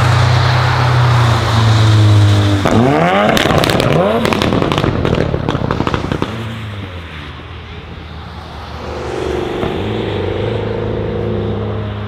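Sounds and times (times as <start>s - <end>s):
exhaust popping and crackling: 2.6s - 6.6s
car engine accelerating: 8.4s - 12.0s.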